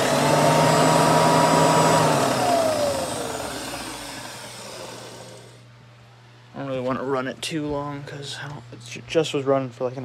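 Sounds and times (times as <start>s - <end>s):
vacuum cleaner motor whining: 0.0s - 5.6s.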